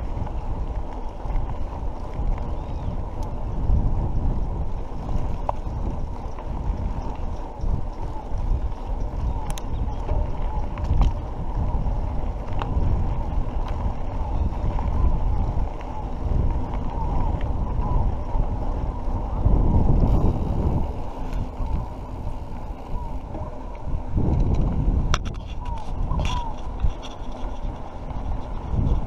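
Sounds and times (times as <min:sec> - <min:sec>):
wind rushing over microphone: 0:00.0 - 0:29.0
small rattles: 0:24.3 - 0:29.0.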